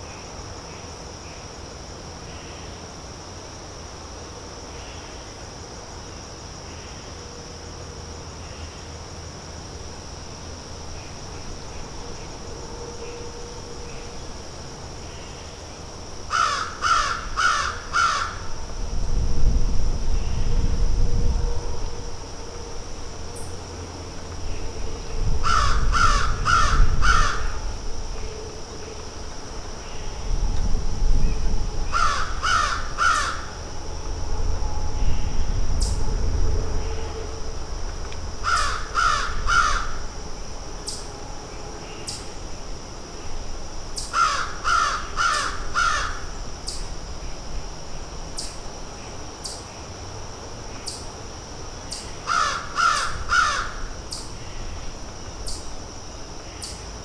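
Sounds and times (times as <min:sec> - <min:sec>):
crows cawing: 0:16.3 - 0:18.5, 0:25.4 - 0:27.6, 0:31.9 - 0:33.5, 0:38.4 - 0:40.0, 0:44.1 - 0:46.3, 0:52.3 - 0:53.9
low rumble: 0:29.4 - 0:38.4.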